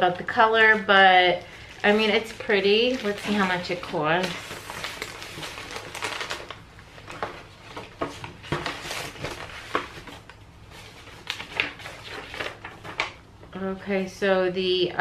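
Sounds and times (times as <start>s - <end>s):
paper rustling: 1.5s - 13.2s.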